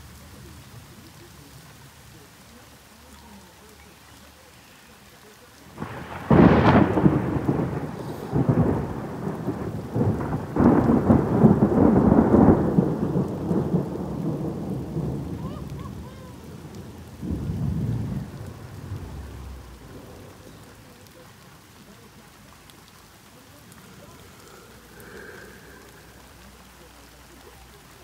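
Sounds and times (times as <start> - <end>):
rain falling: 0.0 - 28.0
thunder rumbling: 5.7 - 27.4.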